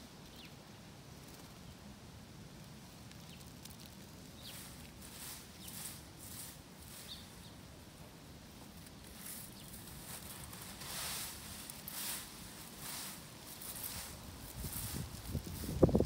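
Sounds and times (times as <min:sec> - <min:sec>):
broom sweeping leaves: 0:04.3 - 0:16.0.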